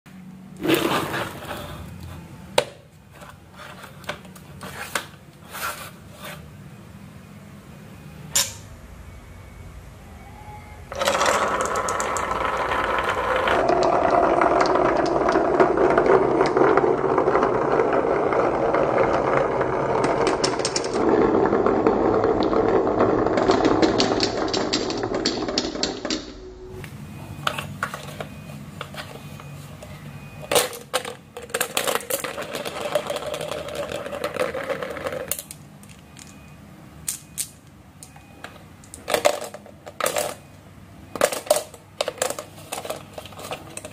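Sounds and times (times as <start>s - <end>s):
marbles clicking on wooden track: 10.9s - 26.2s, 30.6s - 36.4s.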